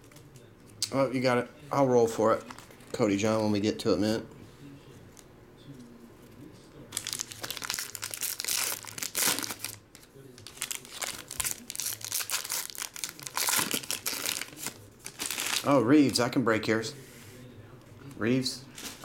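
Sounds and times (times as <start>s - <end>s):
foil wrapper tearing and crinkling: 6.9s - 9.8s, 10.4s - 15.8s.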